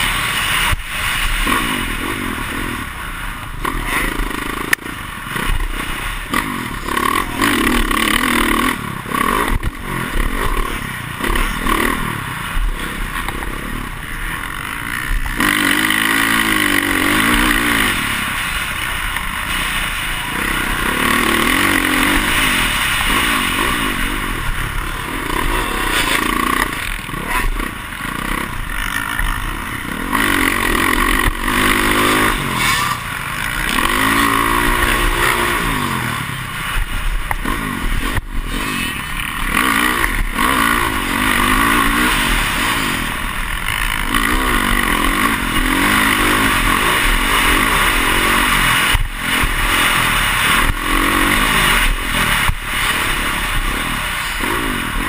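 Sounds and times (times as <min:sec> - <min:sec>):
clatter and rushing ride noise: 0:00.0 - 0:55.0
dirt bike engine revving: 0:00.0 - 0:55.0.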